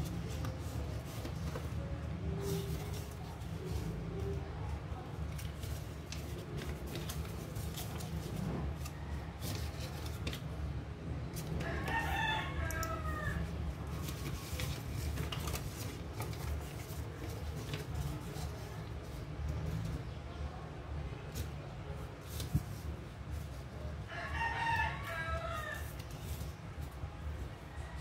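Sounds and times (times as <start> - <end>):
rooster crowing: 11.6 - 13.6, 24.1 - 25.9.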